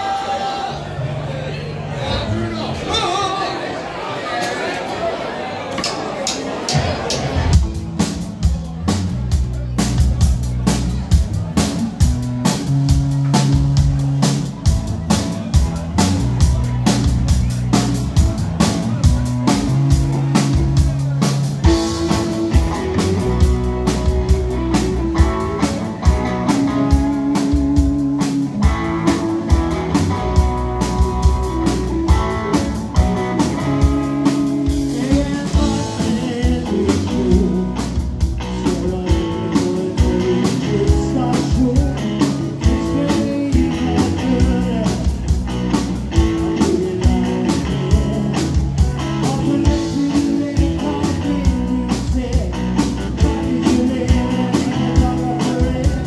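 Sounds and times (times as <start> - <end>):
drum kit beat: 6.7 - 56.0
electric guitars: 6.8 - 56.0
electric bass: 7.2 - 56.0
man singing: 33.2 - 45.4, 46.1 - 56.0.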